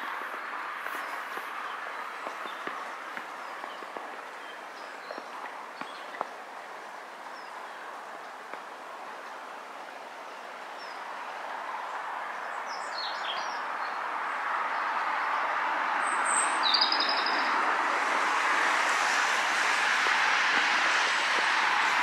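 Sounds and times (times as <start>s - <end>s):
steady rushing noise: 17.4s - 22.0s.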